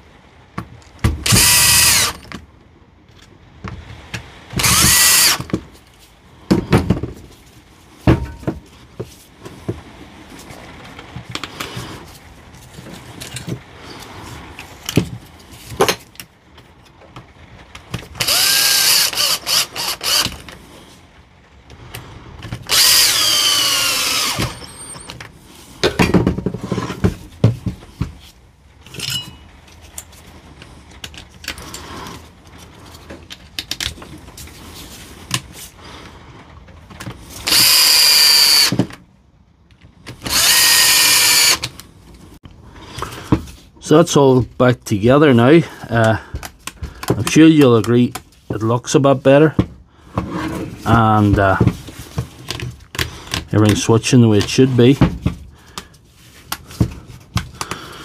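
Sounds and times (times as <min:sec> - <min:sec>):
cordless drill running: 0:01.2 - 0:02.2, 0:04.6 - 0:05.5, 0:18.2 - 0:20.4, 0:22.7 - 0:25.1, 0:37.4 - 0:38.8, 0:40.3 - 0:41.7
clicks and knocks of handling tools: 0:51.6 - 0:57.9.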